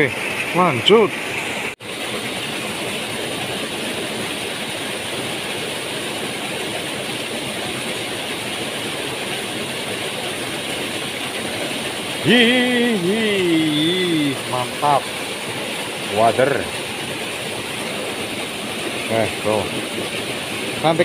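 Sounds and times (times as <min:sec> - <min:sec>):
stream rushing over rocks: 0:00.0 - 0:21.0
man's voice: 0:12.2 - 0:15.0.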